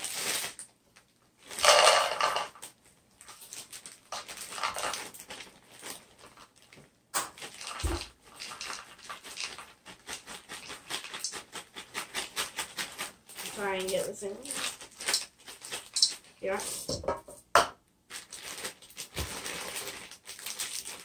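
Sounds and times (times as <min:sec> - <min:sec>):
plastic bag crinkling: 0:00.0 - 0:16.8, 0:18.1 - 0:21.0
chips pattering into plastic cup: 0:01.5 - 0:13.5, 0:14.5 - 0:16.8.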